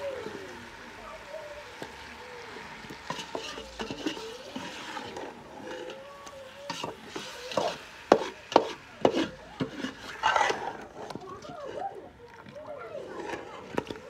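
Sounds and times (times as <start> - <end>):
scraping and rubbing: 3.0 - 14.0.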